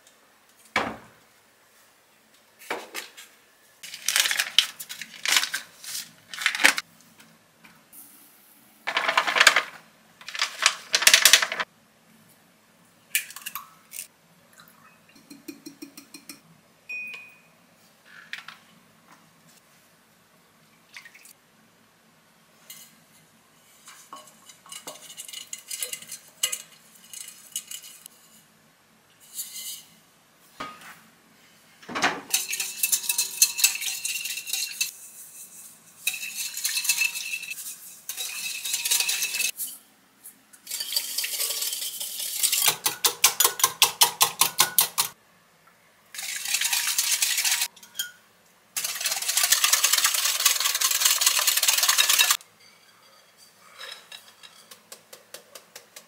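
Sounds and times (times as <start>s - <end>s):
whisk clinking in glass bowl: 32.3s - 35.0s, 36.0s - 39.5s, 48.8s - 53.5s
spatula scraping and tapping bowl: 32.3s - 39.6s, 50.6s - 56.0s.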